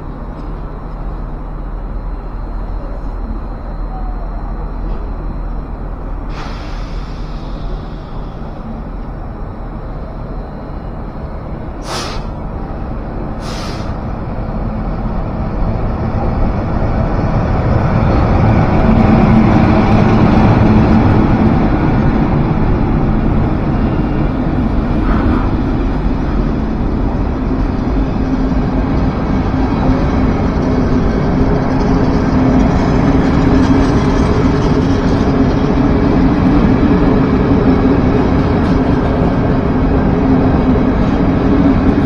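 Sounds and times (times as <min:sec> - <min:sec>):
train rumbling past: 0:00.0 - 0:42.0
short sharp hisses: 0:06.3 - 0:08.1, 0:11.8 - 0:12.4, 0:13.4 - 0:14.0.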